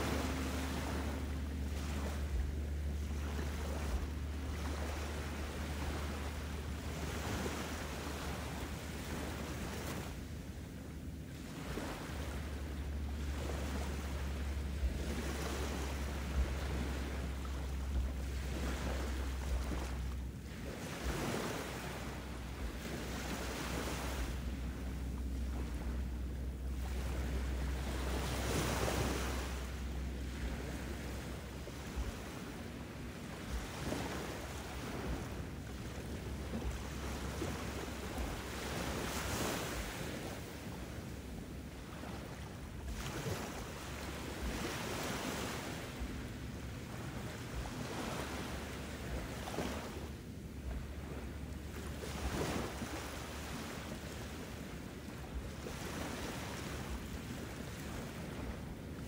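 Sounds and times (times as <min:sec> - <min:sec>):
waves breaking and washing back: 0:00.0 - 0:59.0.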